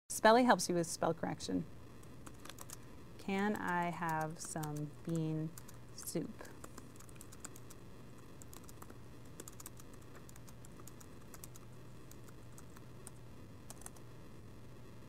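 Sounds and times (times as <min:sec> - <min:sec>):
low steady hum: 0:00.1 - 0:15.0
keyboard typing: 0:02.0 - 0:02.8, 0:03.6 - 0:14.0.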